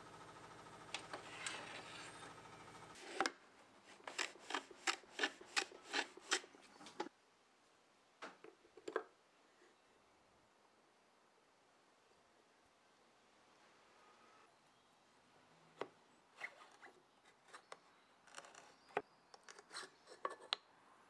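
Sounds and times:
marking gauge scraping wood: 1.1 - 2.2, 3.9 - 7.1
hand plane strokes on wood: 3.9 - 6.5.

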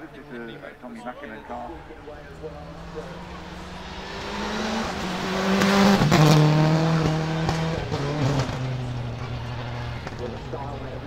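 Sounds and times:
rally car engine accelerating past: 2.2 - 11.0.

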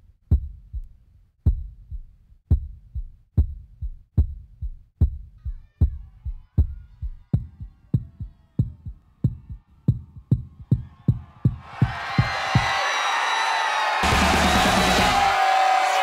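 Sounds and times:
heartbeat thumps: 0.3 - 12.8.

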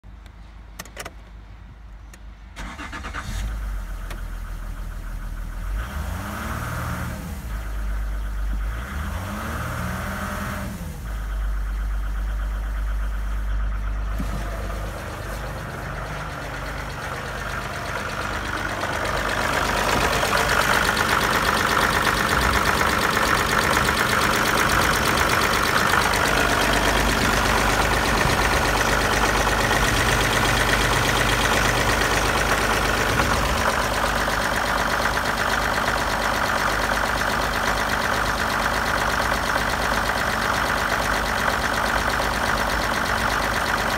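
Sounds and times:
diesel engine starting and idling: 0.3 - 43.9
engine revving: 5.6 - 11.5, 14.1 - 39.8.

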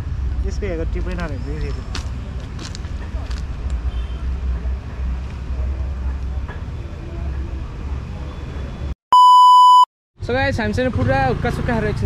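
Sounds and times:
loud electronic beep: 9.1 - 9.9.

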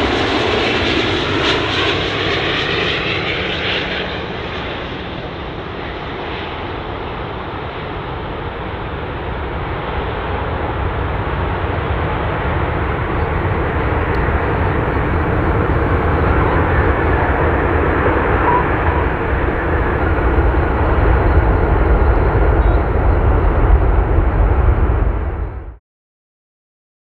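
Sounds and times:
jet engine roar: 0.0 - 25.8.

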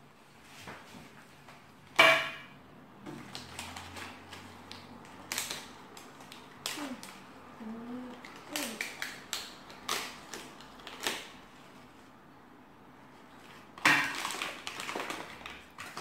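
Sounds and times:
foil wrapper crinkling: 3.2 - 7.2, 8.1 - 11.8, 13.4 - 16.0.

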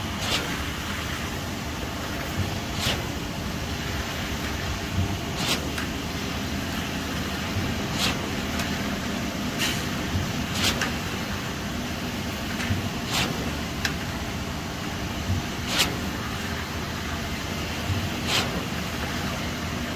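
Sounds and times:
engine running steadily: 0.0 - 19.9
short sharp click or scrape: 2.8 - 3.1, 5.4 - 5.9, 7.9 - 8.7, 10.5 - 11.0, 13.1 - 13.4, 15.6 - 16.1, 18.2 - 18.6.

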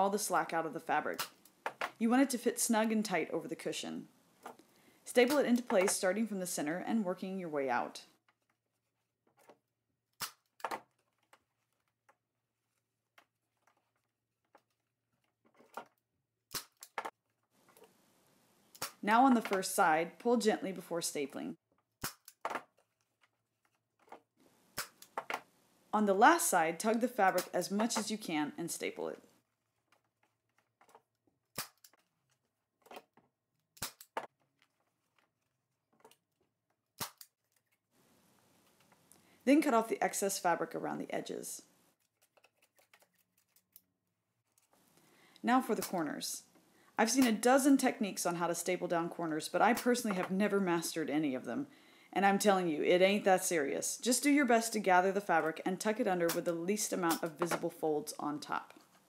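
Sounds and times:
fabric and board handling ticks: 42.0 - 43.8.

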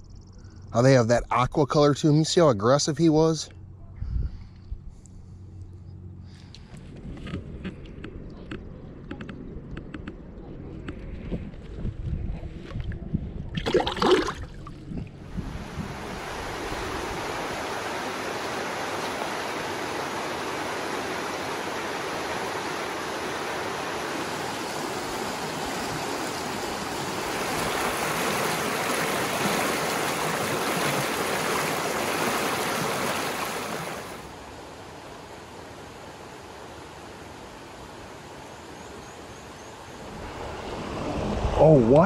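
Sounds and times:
water splash: 13.5 - 34.3
river rapids rushing: 15.5 - 38.4.

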